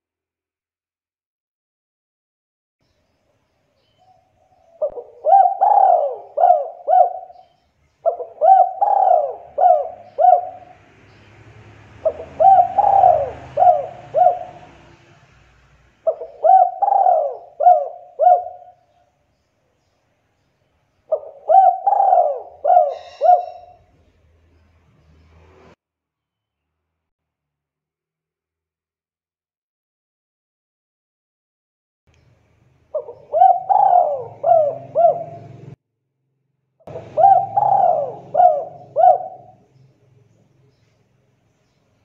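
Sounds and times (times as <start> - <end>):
dove cooing: 4.4 - 10.8, 12.0 - 15.0, 16.0 - 19.0, 21.1 - 23.9, 32.9 - 35.8, 36.9 - 39.6.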